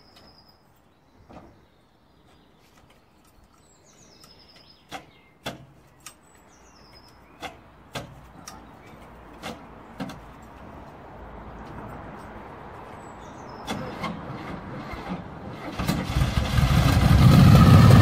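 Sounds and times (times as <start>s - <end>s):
sharp knocks and clunks: 1.3s - 1.6s, 4.9s - 5.8s, 7.4s - 10.5s.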